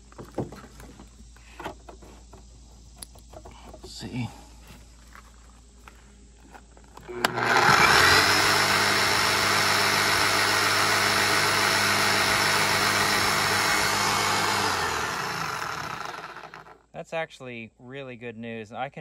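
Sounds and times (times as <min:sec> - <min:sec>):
hammer drill motor running: 0:07.0 - 0:16.8.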